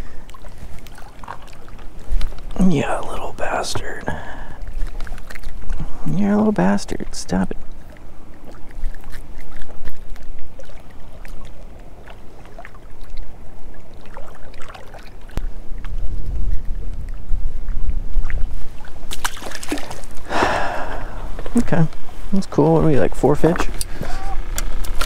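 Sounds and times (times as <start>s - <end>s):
wind buffeting microphone: 15.3s - 25.0s.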